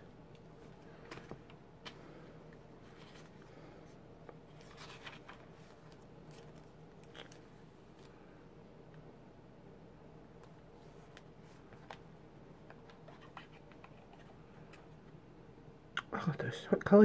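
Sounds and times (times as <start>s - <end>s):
paper handling: 4.5s - 8.2s.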